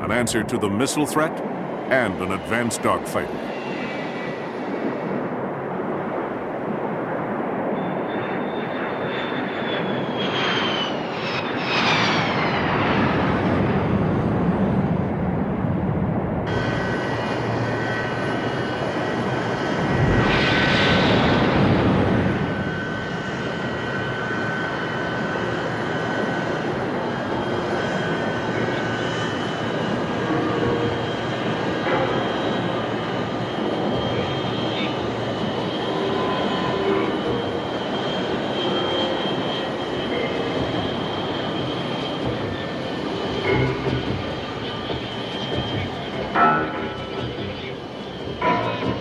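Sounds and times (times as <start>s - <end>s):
jet engine turbine whine: 0.0s - 49.0s
jet thrust rush: 8.1s - 49.0s
falling whines: 16.5s - 49.0s.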